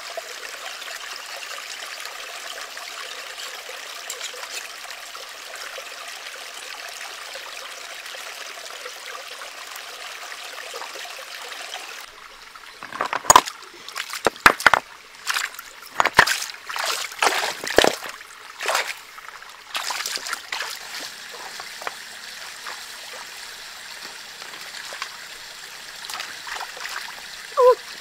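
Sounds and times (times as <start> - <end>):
stream trickling: 0.0 - 28.0
splashing in a stream: 12.6 - 27.8
stones knocking: 12.8 - 16.5, 17.2 - 18.2.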